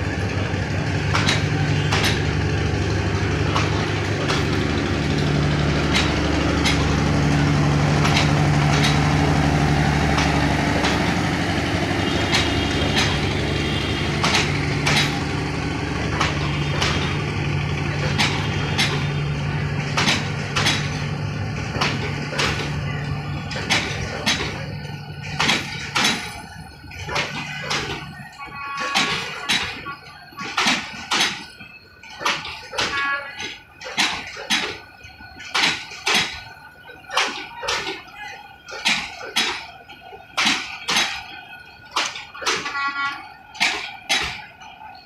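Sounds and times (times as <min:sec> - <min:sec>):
low engine hum: 0:00.0 - 0:28.9
train wheels clacking on rail joints: 0:00.0 - 0:45.0.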